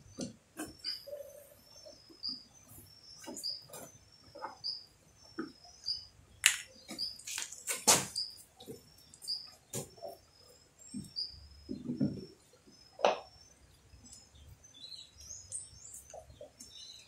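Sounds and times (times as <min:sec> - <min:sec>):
small bird chirping: 0:00.0 - 0:17.0.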